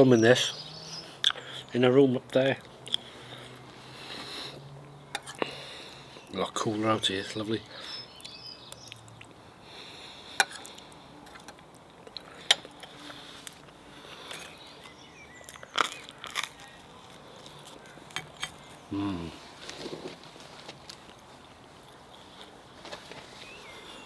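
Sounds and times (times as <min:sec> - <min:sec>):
faint birdsong: 0:00.0 - 0:24.0
man chewing: 0:02.8 - 0:04.6, 0:10.0 - 0:20.2
man humming: 0:18.9 - 0:19.4.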